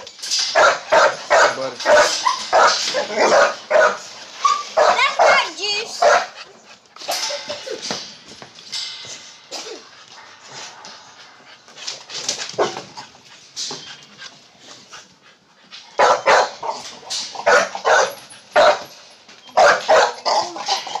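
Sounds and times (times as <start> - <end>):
dogs barking: 0.4 - 7.9, 12.4 - 13.1, 15.9 - 21.0.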